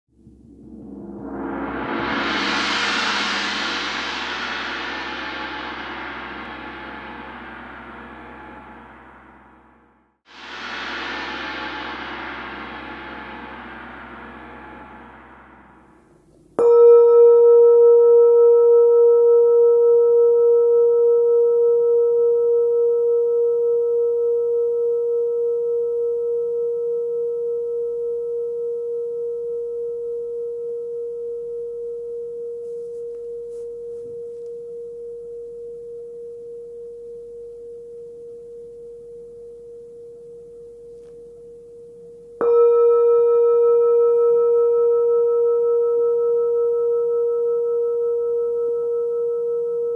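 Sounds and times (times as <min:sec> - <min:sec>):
singing bowl ringing: 0:10.4 - 0:49.9.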